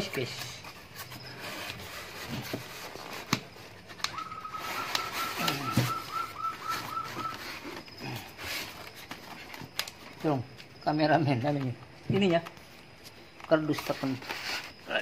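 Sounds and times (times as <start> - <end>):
foam squeaking on cardboard: 0.0 - 9.6, 13.5 - 15.0
high whistled note warbling: 4.2 - 7.4.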